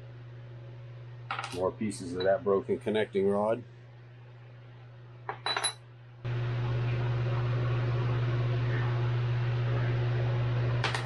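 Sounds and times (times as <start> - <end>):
metallic clink: 5.3 - 5.8
machine hum with hiss: 6.3 - 11.0.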